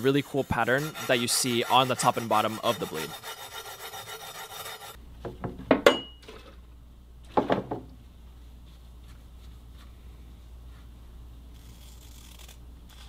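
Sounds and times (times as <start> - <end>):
hand sanding on steel blade: 0.0 - 5.0
low steady hum: 4.9 - 13.0.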